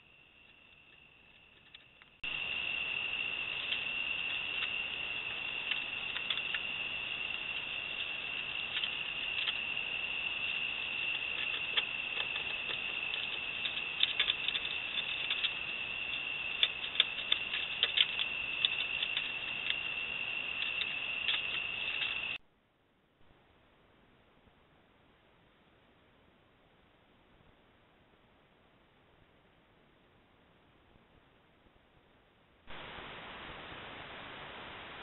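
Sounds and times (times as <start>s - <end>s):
night insect chorus: 0.0s - 22.4s.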